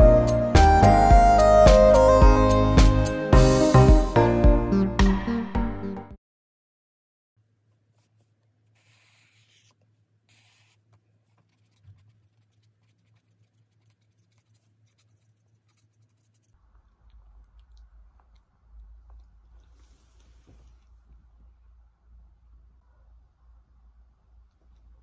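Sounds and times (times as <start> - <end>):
highlighter pen scratching paper: 7.9 - 16.6
low rumble of room noise: 10.9 - 25.0.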